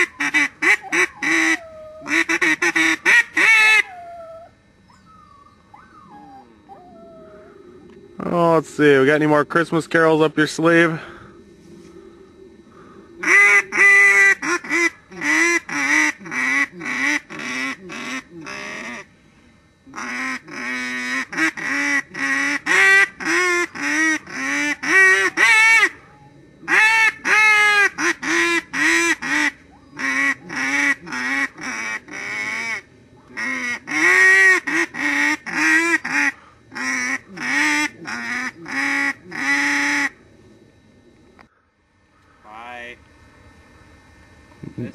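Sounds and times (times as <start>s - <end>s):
duck call honking quack notes: 0.0s - 3.9s, 13.2s - 19.1s, 19.9s - 25.9s, 26.7s - 32.8s, 33.4s - 40.1s.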